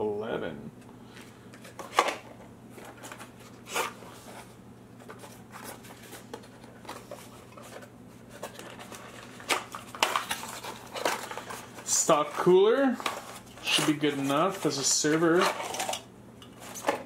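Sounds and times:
steady low hum: 0.0s - 17.0s
cardboard box rustling: 2.7s - 15.8s.

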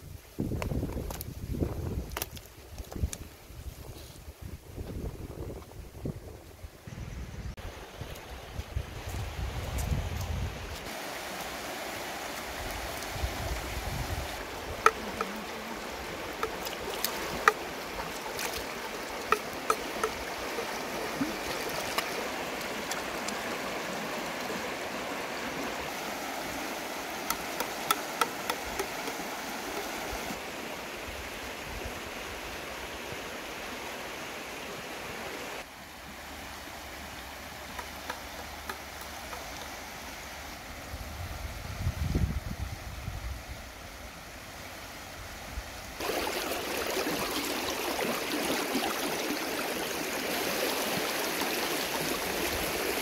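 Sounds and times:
river rushing over rocks: 10.9s - 31.0s, 46.0s - 53.0s.

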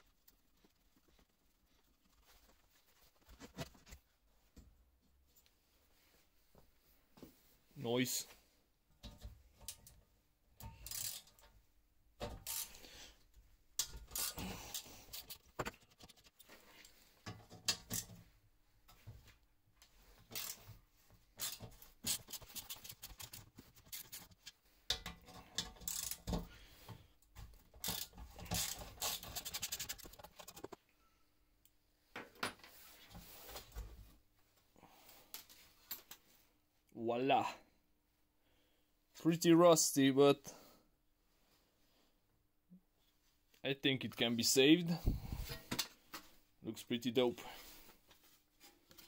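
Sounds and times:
screwdriver scraping: 13.8s - 16.4s, 20.3s - 20.7s, 21.4s - 26.5s, 27.8s - 30.8s.

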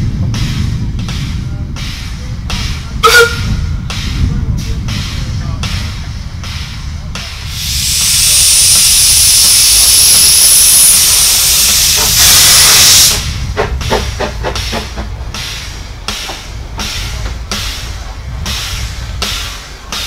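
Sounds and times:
steam hissing from locomotive: 0.0s - 20.0s
steam locomotive exhaust beats: 0.0s - 20.0s.

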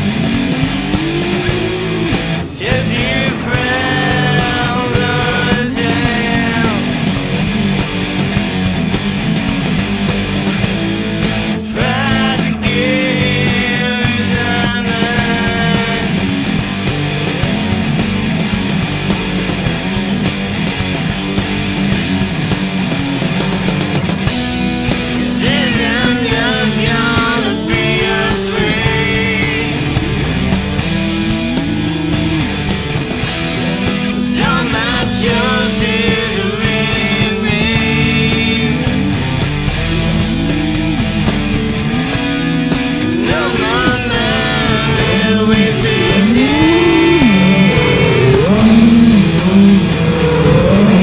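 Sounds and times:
rock music: 0.0s - 51.0s
person singing: 0.8s - 7.3s, 11.6s - 16.5s, 25.2s - 30.5s, 33.7s - 39.2s, 42.6s - 51.0s.

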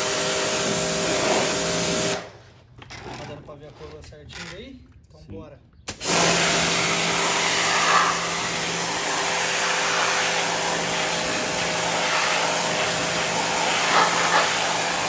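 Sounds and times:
pressure washer jet hissing: 0.0s - 2.2s, 5.9s - 15.0s.

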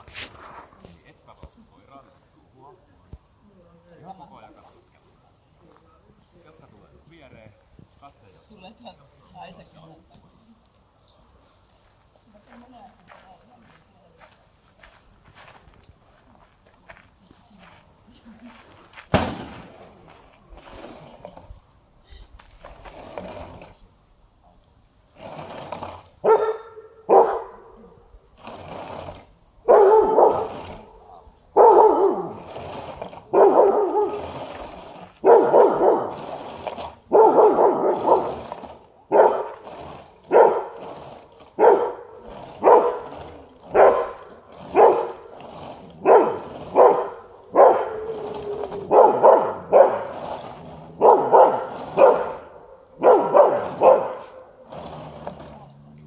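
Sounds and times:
dog barking: 26.2s - 27.8s, 29.7s - 30.6s, 31.6s - 32.4s, 33.3s - 34.2s, 35.2s - 36.2s, 37.1s - 38.4s, 39.1s - 39.6s, 40.3s - 40.8s, 41.6s - 43.1s, 43.7s - 45.2s, 46.0s - 48.1s, 48.8s - 50.1s, 51.0s - 54.4s.

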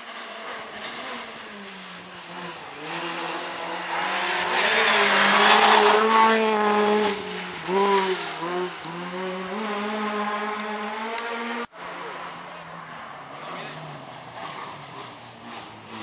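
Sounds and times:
rally car engine passing: 0.0s - 16.0s.

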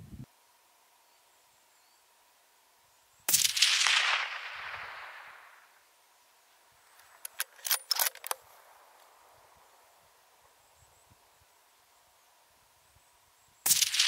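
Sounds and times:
rifle shot echoing: 3.3s - 5.8s, 13.7s - 14.0s
sharp clicks: 6.9s - 8.4s.

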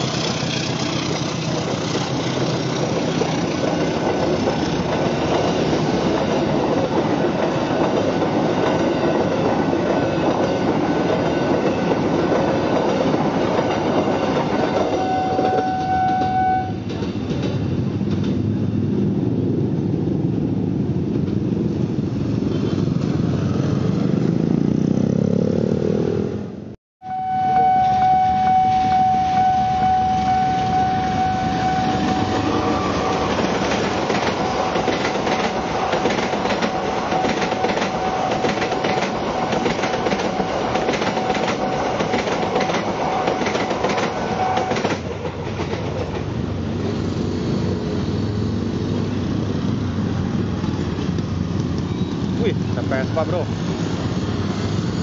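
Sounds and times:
train wheels clattering over rails: 0.0s - 15.6s, 32.0s - 47.0s
steady single-pitched tone: 15.0s - 16.8s, 27.0s - 32.9s
motorcycle engines: 17.8s - 26.7s.

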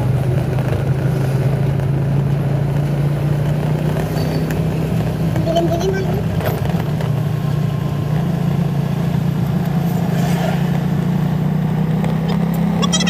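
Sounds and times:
road noise: 0.0s - 13.0s
vehicle engine drone: 0.0s - 13.0s.

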